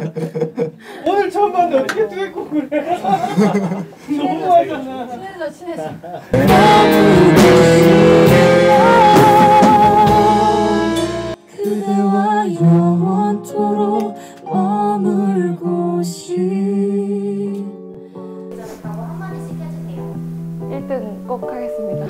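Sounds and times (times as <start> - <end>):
band playing with singing: 6.4 - 11.4
woman singing slow melody: 6.4 - 17.9.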